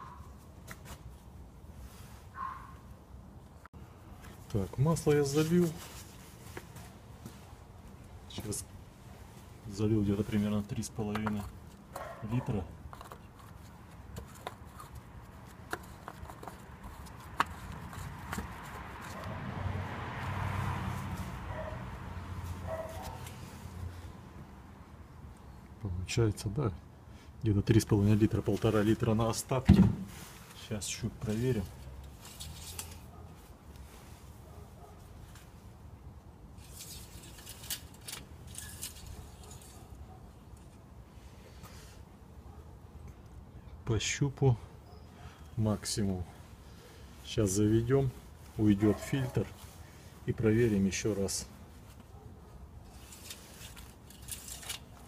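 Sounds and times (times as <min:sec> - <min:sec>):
cloth rag rustling: 0:04.3 - 0:07.7.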